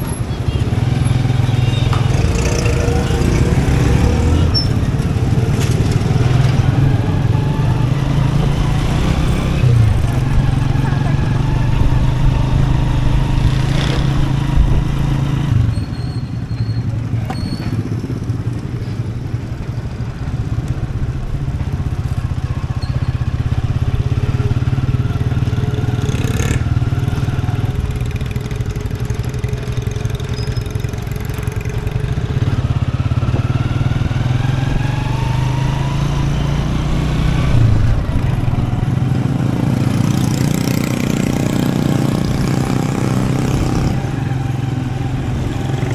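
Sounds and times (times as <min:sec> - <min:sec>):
motorcycle engine running: 0:16.6 - 0:36.0, 0:36.8 - 0:45.9.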